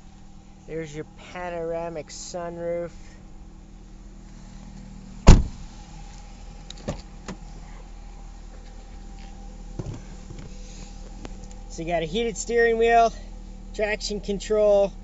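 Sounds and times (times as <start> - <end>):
steady low hum: 0.0 - 15.0
car door shutting: 5.2 - 7.8, 8.5 - 11.4.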